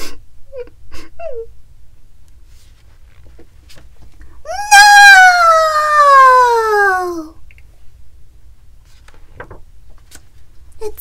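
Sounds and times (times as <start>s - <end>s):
person yelling no: 4.5s - 7.4s.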